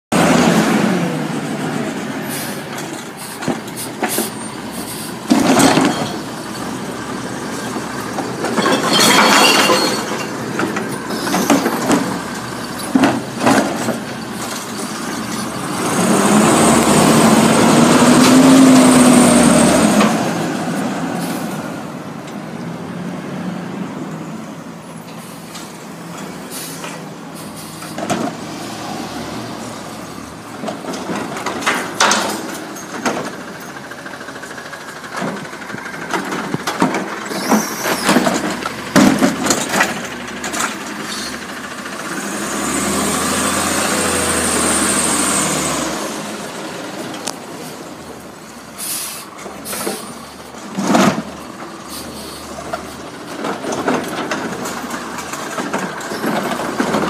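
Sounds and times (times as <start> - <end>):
garbage truck engine revving: 0.1 - 22.1, 26.0 - 57.0
clanks and knocks: 5.3 - 6.3, 8.1 - 15.6, 30.6 - 34.0, 34.7 - 41.5, 52.7 - 57.0
air brake hisses: 26.5 - 28.0, 48.8 - 50.2.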